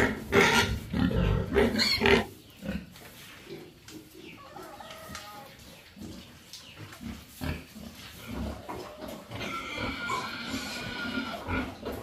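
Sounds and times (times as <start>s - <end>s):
pigs grunting: 0.0s - 2.9s, 7.4s - 12.0s.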